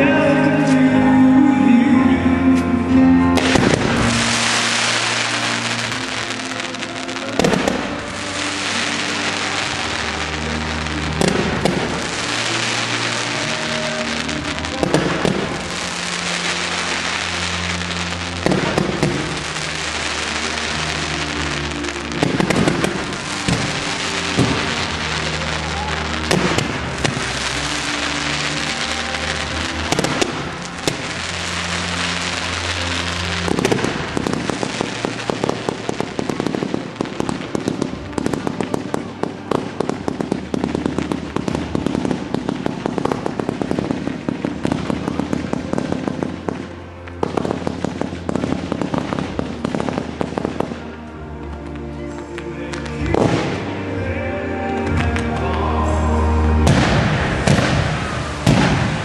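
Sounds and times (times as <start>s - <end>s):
firework shells bursting: 3.4s - 46.5s
rapid firework crackling: 3.4s - 51.0s, 52.7s - 53.7s, 56.6s - 59.0s.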